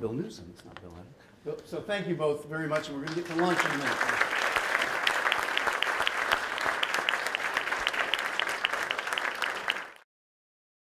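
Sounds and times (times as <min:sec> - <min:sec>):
audience applauding: 0:02.8 - 0:10.0.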